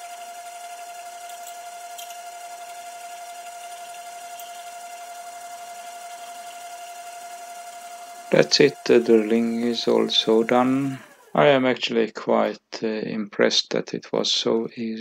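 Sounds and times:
lathe running with high whine: 0:00.0 - 0:11.8.

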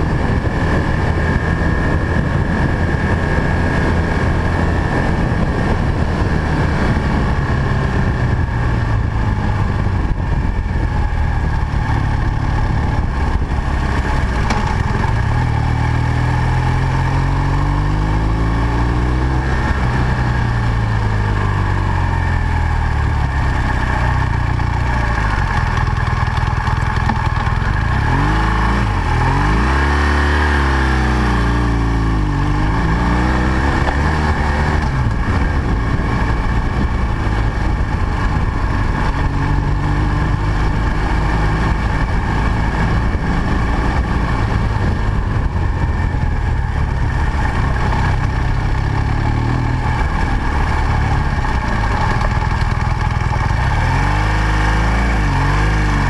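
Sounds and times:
motorcycle engine: 0:00.0 - 0:56.0
wind rushing: 0:26.2 - 0:54.4.

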